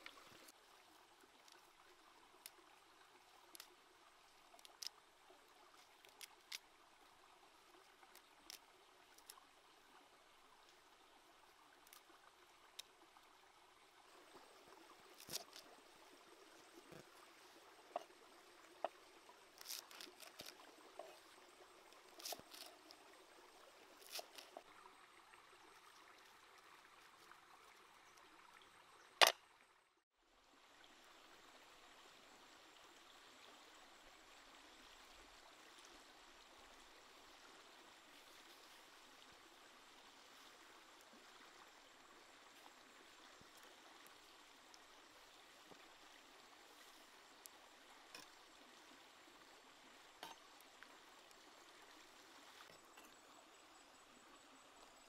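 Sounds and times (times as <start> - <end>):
faint steady hiss: 0.0 - 55.0.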